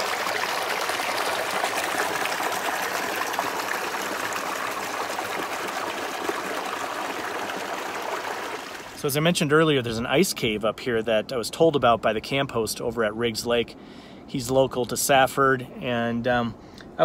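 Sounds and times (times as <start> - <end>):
water trickling over rocks: 0.0 - 9.1.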